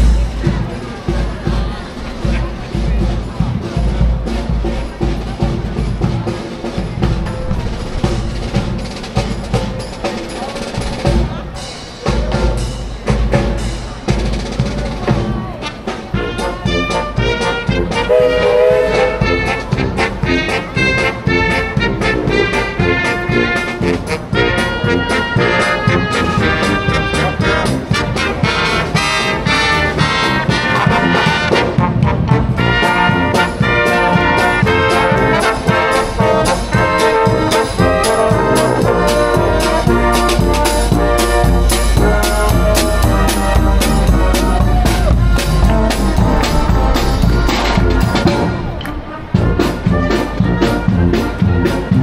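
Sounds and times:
steady beat: 0:00.0 - 0:25.0, 0:25.8 - 0:52.0
brass band playing a bright tune: 0:00.0 - 0:52.0
music with heavy drumming: 0:00.0 - 0:52.0
bass drum thumps: 0:39.4 - 0:48.8.

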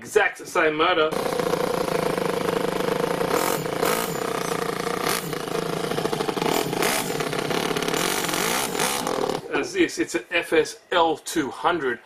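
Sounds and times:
model engine buzzing: 0:01.1 - 0:09.5.

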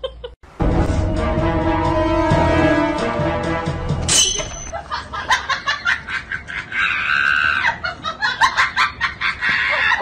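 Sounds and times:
people laughing: 0:04.7 - 0:10.0
high-pitched shrieking laugh: 0:04.8 - 0:10.0.

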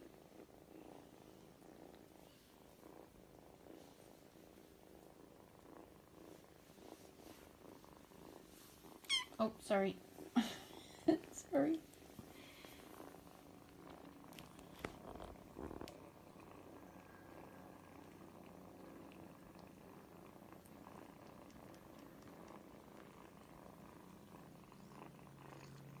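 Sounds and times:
kitten purring: 0:00.0 - 0:26.0.

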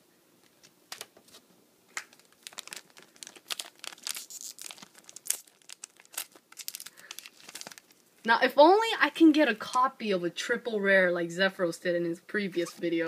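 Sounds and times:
foil wrapper crinkling: 0:01.9 - 0:08.1.

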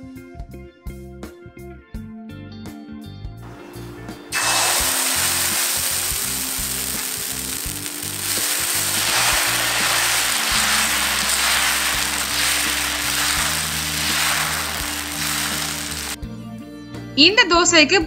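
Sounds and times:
background music with low notes: 0:00.0 - 0:18.0
batter sizzling on hot griddle: 0:04.3 - 0:16.2.

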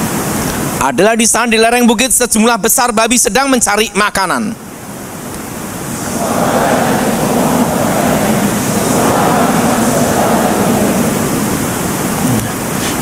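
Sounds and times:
congregation reading aloud together: 0:02.7 - 0:12.4.

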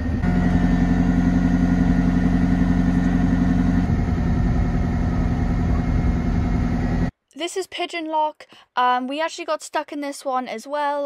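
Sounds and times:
diesel boat engine running: 0:00.0 - 0:07.1.

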